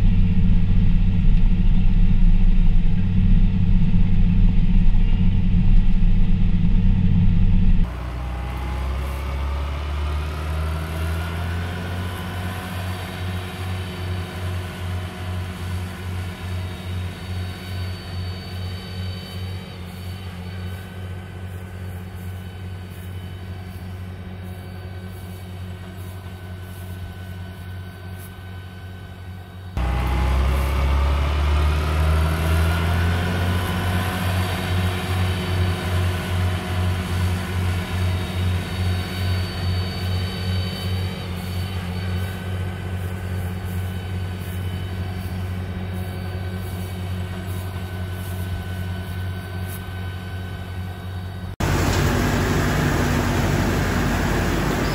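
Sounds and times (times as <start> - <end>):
steady low hum: 0.0 - 31.7
tractor engine revving: 7.9 - 16.5, 29.8 - 39.8, 51.6 - 54.9.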